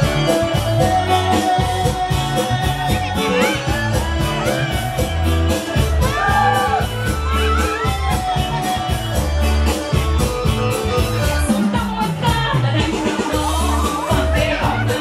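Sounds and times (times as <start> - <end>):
steady drum beat: 0.0 - 15.0.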